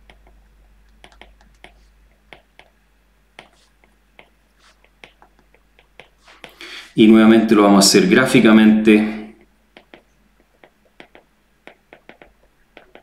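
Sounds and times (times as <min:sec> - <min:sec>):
stylus tapping on a tablet screen: 0:00.0 - 0:02.8, 0:03.4 - 0:06.6, 0:09.4 - 0:13.0.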